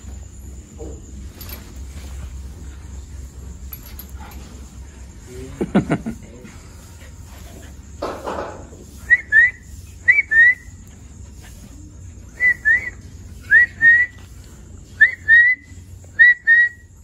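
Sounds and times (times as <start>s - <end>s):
person whistling sliding notes: 9.0s - 10.7s, 12.4s - 14.2s, 15.0s - 16.9s.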